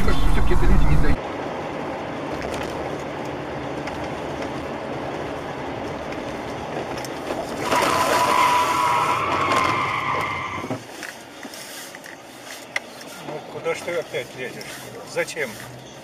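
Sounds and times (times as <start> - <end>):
car road and engine noise: 0.0 - 16.0.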